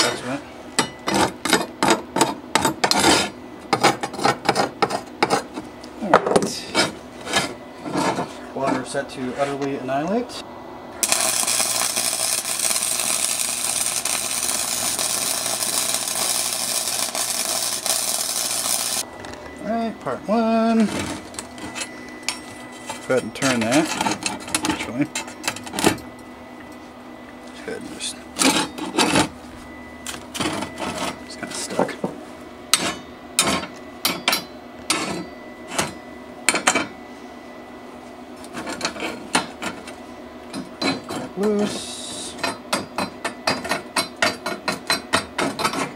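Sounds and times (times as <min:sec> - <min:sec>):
welding arc crackling: 0:11.0 - 0:19.1.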